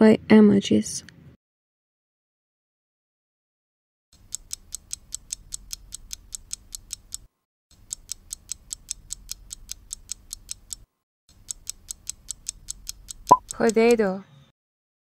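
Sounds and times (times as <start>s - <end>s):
rapid clock ticking: 4.2s - 14.0s.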